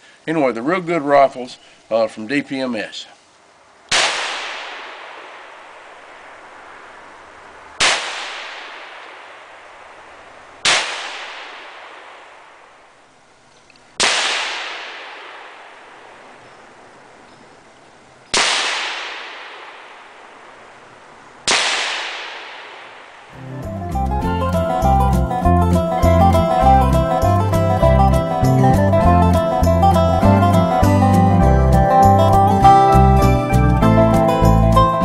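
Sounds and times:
rifle shots echoing: 0:03.9 - 0:13.0, 0:14.0 - 0:16.6, 0:18.3 - 0:20.7, 0:21.4 - 0:23.4.

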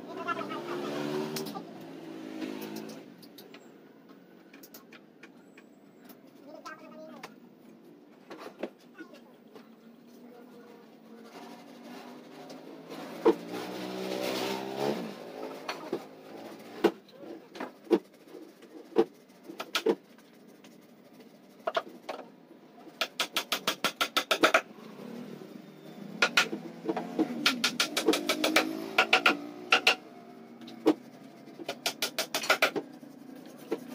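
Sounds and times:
hammer driving nails into wood: 0:23.0 - 0:24.6, 0:26.2 - 0:26.6, 0:27.2 - 0:30.0, 0:31.6 - 0:32.8.

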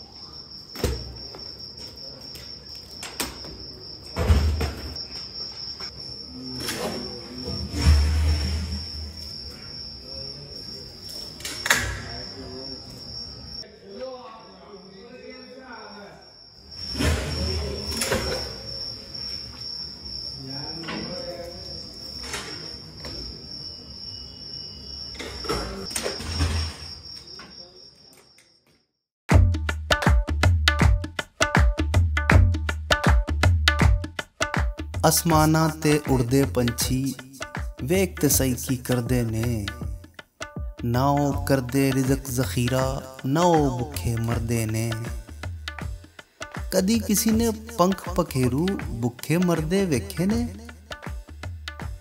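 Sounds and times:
crickets chirring: 0:00.0 - 0:29.0, 0:29.6 - 0:52.0
metal bucket scraping a cauldron: 0:07.6 - 0:09.1, 0:26.1 - 0:27.0.

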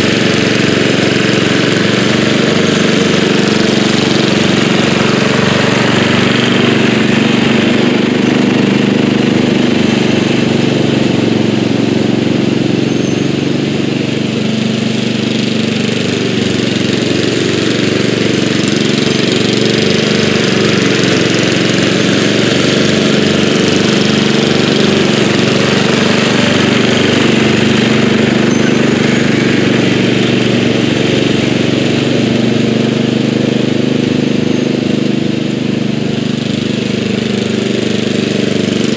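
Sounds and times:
lawn tractor engine running: 0:00.0 - 0:38.9.

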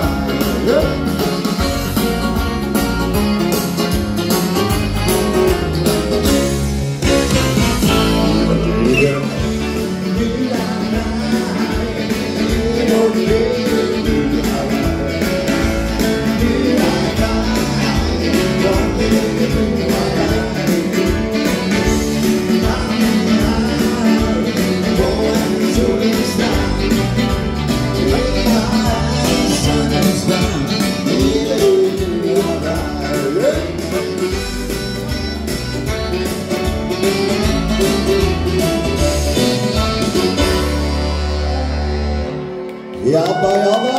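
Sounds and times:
man singing into microphone: 0:00.0 - 0:01.2, 0:07.0 - 0:34.2, 0:40.8 - 0:43.9
live dance band playing: 0:00.0 - 0:43.9.

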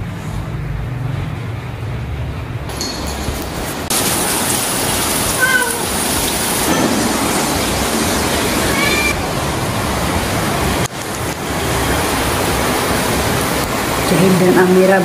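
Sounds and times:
heavy rain falling: 0:02.7 - 0:15.0
faint high-pitched calls: 0:05.4 - 0:05.9, 0:08.6 - 0:09.2.

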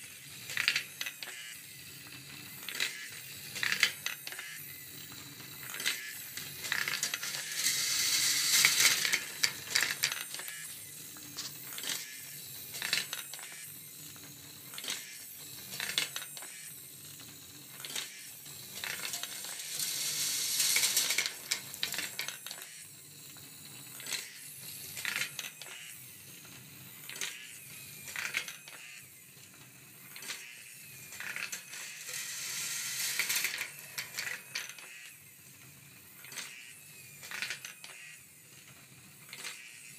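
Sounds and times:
balls rattling down wire tracks: 0:06.6 - 0:10.2, 0:18.7 - 0:22.4.

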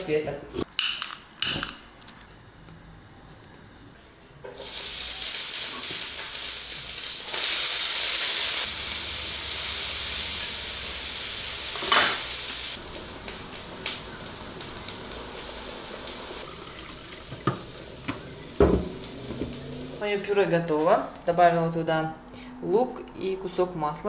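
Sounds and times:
oil crackles: 0:04.5 - 0:20.0
onion sizzling in hot oil: 0:04.5 - 0:20.0.

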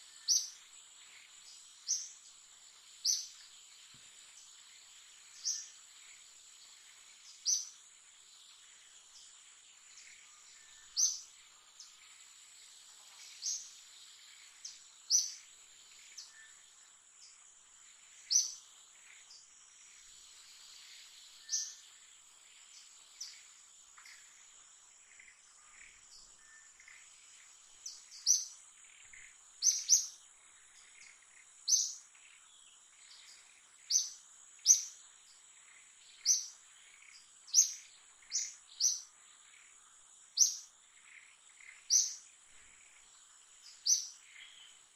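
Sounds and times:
high insect drone: 0:00.0 - 0:44.9
sharp bird chirps: 0:27.9 - 0:30.2, 0:36.1 - 0:39.1, 0:41.6 - 0:42.3, 0:43.6 - 0:44.8.

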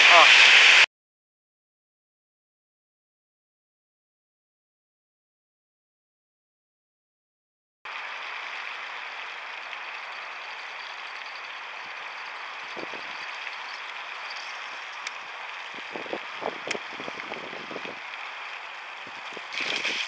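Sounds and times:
outdoor background hiss: 0:07.9 - 0:20.0.

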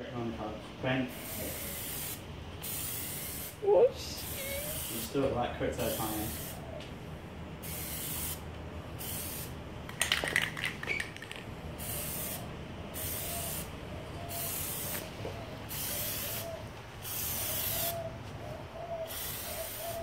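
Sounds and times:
aerosol can spraying: 0:01.2 - 0:03.6, 0:04.2 - 0:05.1, 0:07.6 - 0:08.4, 0:09.0 - 0:12.4, 0:13.0 - 0:13.7, 0:14.3 - 0:15.1, 0:15.7 - 0:18.0, 0:19.1 - 0:20.0.

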